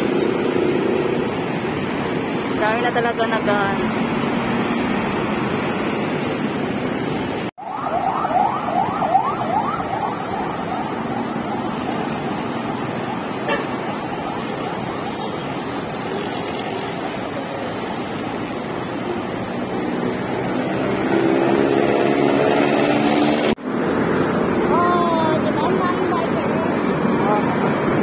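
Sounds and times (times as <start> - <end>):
heavy road traffic: 0.0 - 28.0
electronic siren yelping: 7.6 - 15.6.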